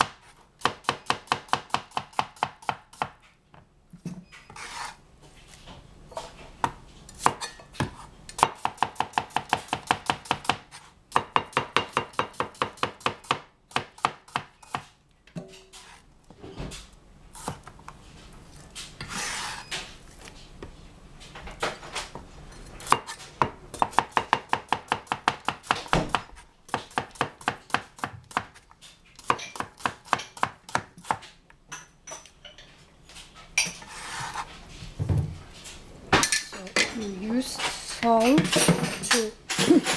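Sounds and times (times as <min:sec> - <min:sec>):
knife scraping swish: 0:04.5 - 0:05.0, 0:19.0 - 0:19.7, 0:33.8 - 0:34.7
knife slicing on cutting board: 0:04.6 - 0:05.0, 0:19.0 - 0:19.7, 0:33.8 - 0:34.5.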